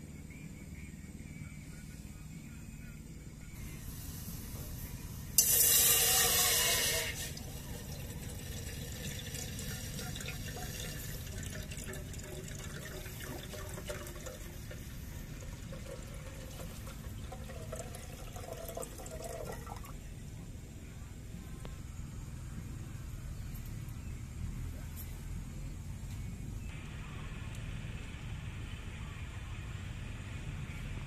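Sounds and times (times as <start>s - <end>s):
water pouring into metal kettle: 5.4s - 19.9s.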